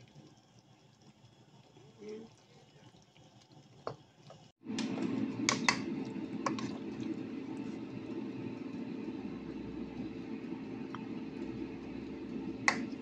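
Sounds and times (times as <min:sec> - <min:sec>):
steady hum: 0:04.6 - 0:13.0.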